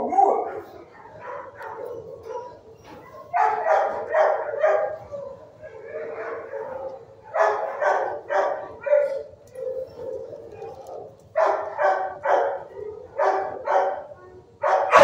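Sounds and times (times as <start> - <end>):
dogs barking: 0.0 - 15.0.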